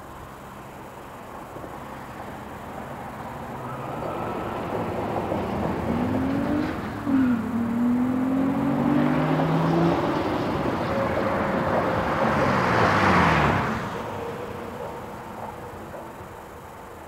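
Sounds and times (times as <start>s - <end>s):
car accelerating past: 3.6s - 14.6s.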